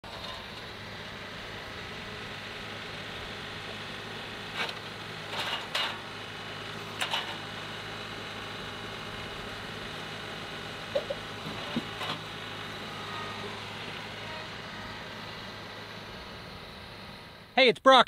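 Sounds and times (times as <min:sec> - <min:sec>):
tractor diesel engine running: 0:00.0 - 0:17.6
log knocking: 0:11.0 - 0:12.0.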